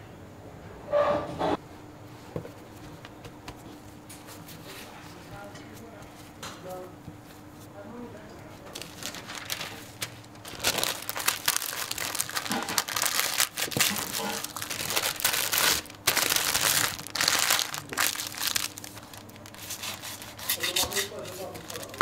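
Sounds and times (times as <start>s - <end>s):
paper wrapper crinkling: 8.5s - 22.0s.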